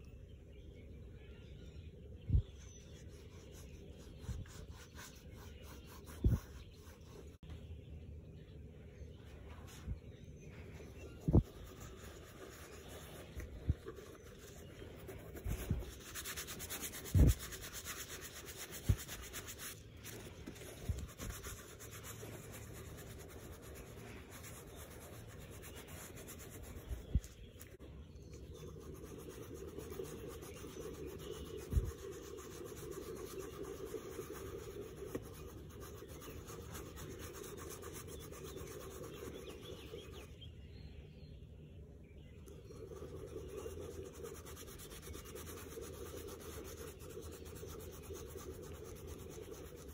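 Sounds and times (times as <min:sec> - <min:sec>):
soft rubbing on leather: 0:09.3 - 0:27.8, 0:28.5 - 0:40.3, 0:42.6 - 0:49.9.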